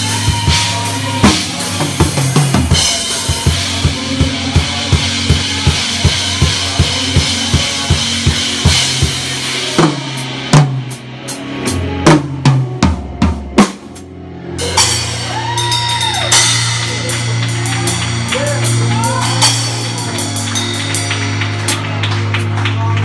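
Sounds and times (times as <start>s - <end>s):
cymbal playing: 13.8s - 22.1s.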